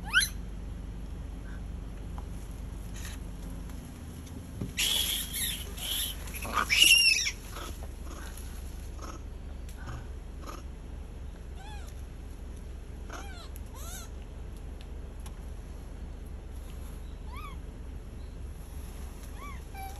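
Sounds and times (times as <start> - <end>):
monkeys calling: 0.0 - 0.4, 4.8 - 10.7, 13.0 - 14.2, 17.2 - 17.7, 19.3 - 19.9
low background rumble: 0.0 - 19.9.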